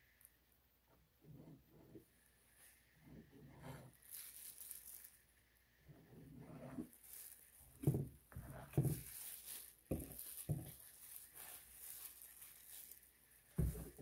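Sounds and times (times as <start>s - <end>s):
soft thuds of cups set down: 13.6s - 14.0s.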